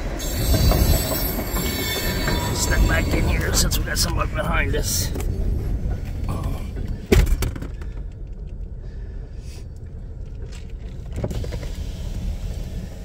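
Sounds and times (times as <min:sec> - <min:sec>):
train cars rumbling past: 0:00.0 - 0:07.1.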